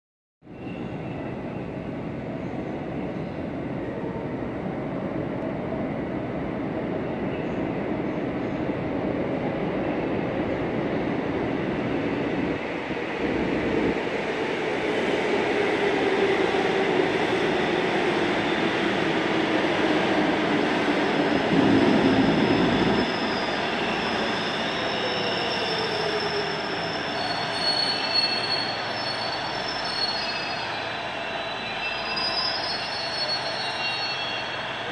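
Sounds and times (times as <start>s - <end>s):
subway train running: 0.5s - 34.9s
high wheel and brake squeals: 22.2s - 34.9s.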